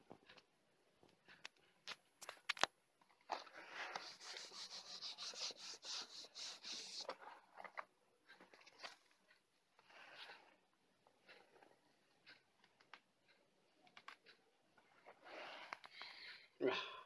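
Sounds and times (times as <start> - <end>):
iron scraping over paper: 3.5 - 7.1.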